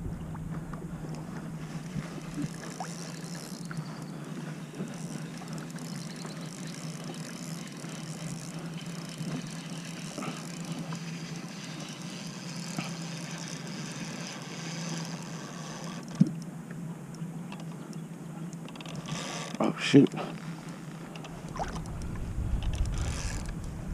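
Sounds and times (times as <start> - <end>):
choppy water: 0.0 - 23.9
wind: 0.0 - 23.9.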